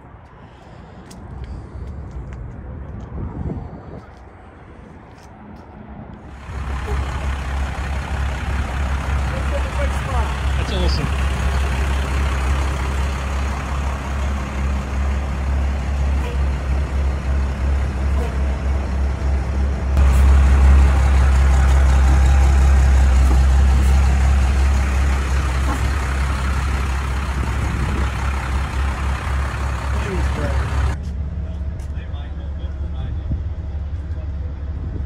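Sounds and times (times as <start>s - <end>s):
truck engine rumbling: 0.0s - 35.0s.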